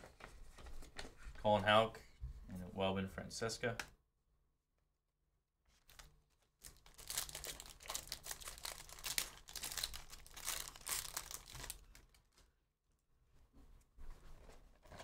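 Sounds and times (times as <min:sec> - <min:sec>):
foil wrapper tearing and crinkling: 0:05.8 - 0:12.4.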